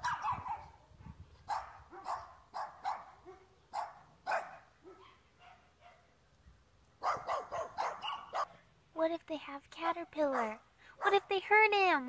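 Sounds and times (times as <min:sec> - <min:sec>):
small dogs barking: 0:00.0 - 0:06.1, 0:07.0 - 0:08.6.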